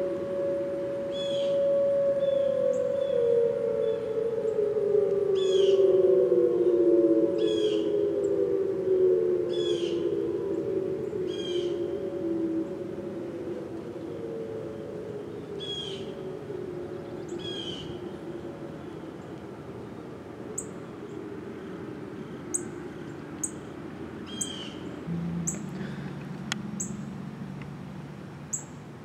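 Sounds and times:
electronic siren gliding down: 0:00.0 - 0:21.5, 0:23.4 - 0:28.7
low hum: 0:00.0 - 0:29.0
birds chirping: 0:24.3 - 0:27.3.

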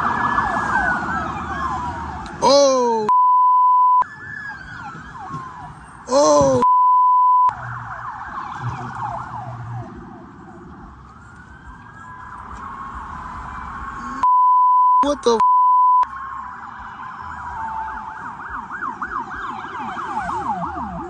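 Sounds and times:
police sirens wailing: 0:00.0 - 0:14.3, 0:15.0 - 0:21.0
person shouting: 0:02.4 - 0:03.1, 0:06.1 - 0:06.7, 0:15.0 - 0:15.4
steady one-tone beep: 0:03.1 - 0:04.0, 0:06.6 - 0:07.5, 0:14.2 - 0:16.0.

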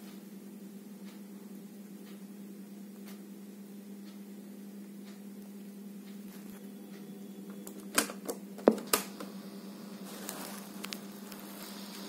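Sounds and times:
low electrical hum: 0:00.0 - 0:12.0
cassette recorder clicks and clunks: 0:07.6 - 0:09.3.

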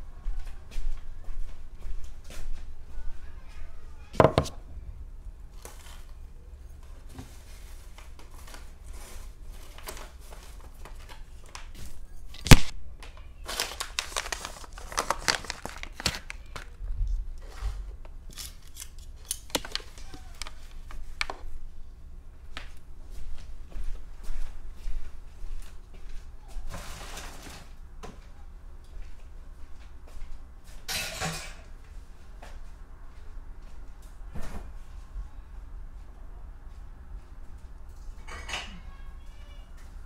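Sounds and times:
sharp knock on table: 0:04.2 - 0:04.5
paper crinkling: 0:07.5 - 0:12.7, 0:13.4 - 0:16.8, 0:18.4 - 0:21.4.

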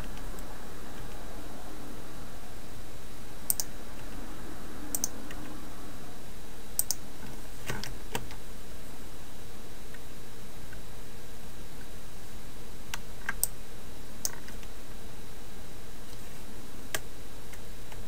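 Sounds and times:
mouse and keyboard clicks: 0:06.8 - 0:07.0.

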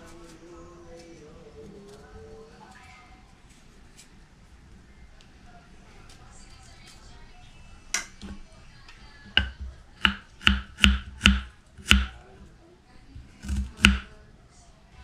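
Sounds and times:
knife chopping on wooden board: 0:09.3 - 0:12.2, 0:13.2 - 0:14.1.

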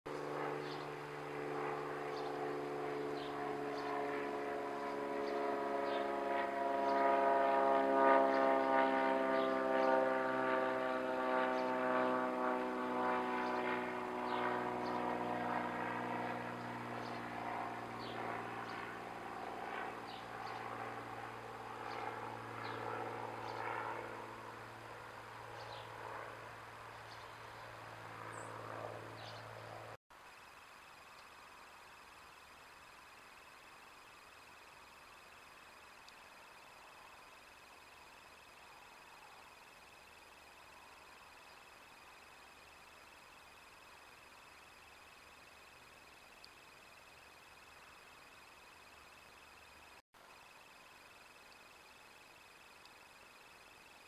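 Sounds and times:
passing engine drone: 0:00.1 - 0:30.0.

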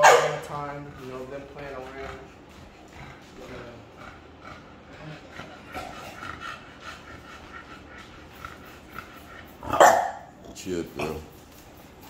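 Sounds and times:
dog barking: 0:00.0 - 0:00.6, 0:09.6 - 0:10.3
dogs whining and panting: 0:00.0 - 0:12.0.

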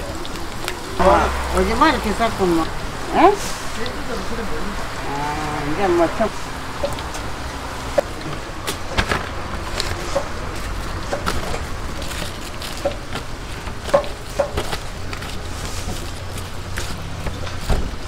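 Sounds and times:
fried fritters clicking and crackling: 0:00.0 - 0:01.0, 0:03.4 - 0:18.0
low hum: 0:00.8 - 0:05.6.

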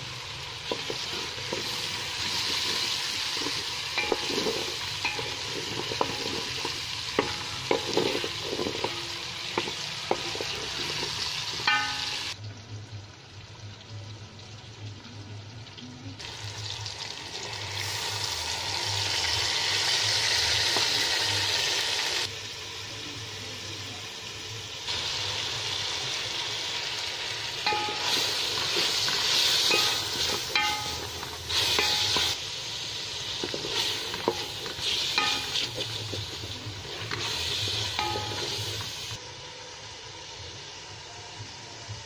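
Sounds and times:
food sizzling in oil: 0:00.0 - 0:14.8, 0:16.2 - 0:42.0
utensil clinking and scraping pot: 0:00.4 - 0:12.4, 0:27.4 - 0:39.2.

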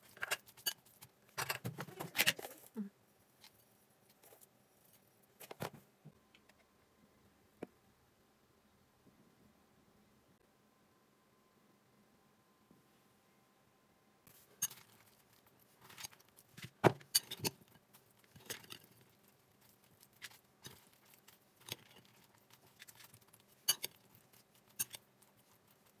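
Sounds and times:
salad leaves rustling: 0:17.4 - 0:26.0.

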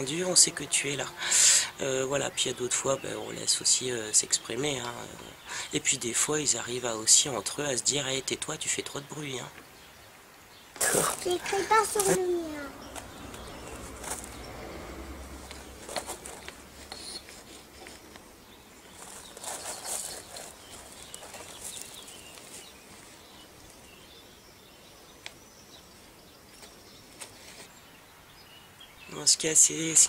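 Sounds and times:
bird chirps: 0:12.5 - 0:29.2
scrapes on gravel: 0:13.0 - 0:14.4, 0:15.5 - 0:18.2, 0:18.9 - 0:22.9.

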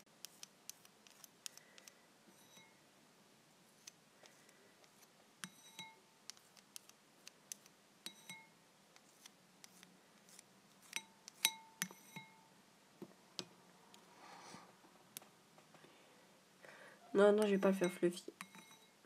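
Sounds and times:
utensil clinking against bowl: 0:08.0 - 0:08.5, 0:11.0 - 0:12.4, 0:17.7 - 0:19.0.

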